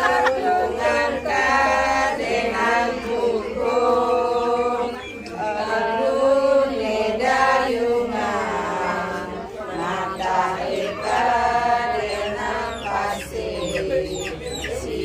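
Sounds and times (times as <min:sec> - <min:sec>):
voices chanting slowly: 0:00.0 - 0:15.0.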